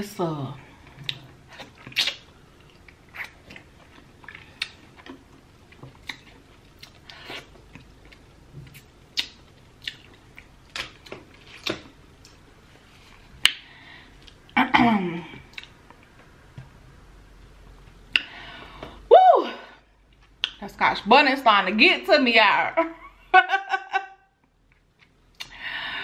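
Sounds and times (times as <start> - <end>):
person chewing wetly: 0.9 - 12.4, 15.5 - 16.1.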